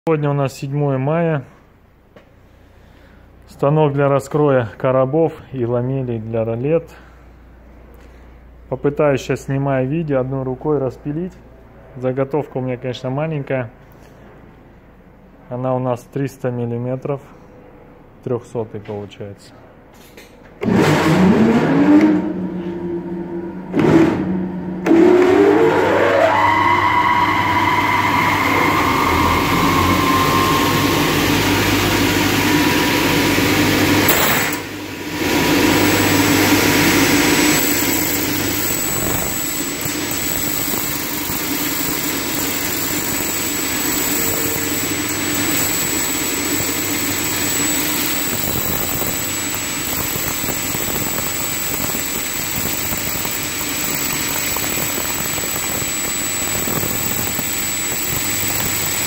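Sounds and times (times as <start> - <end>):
saw cutting sheet metal: 23.8 - 59.0.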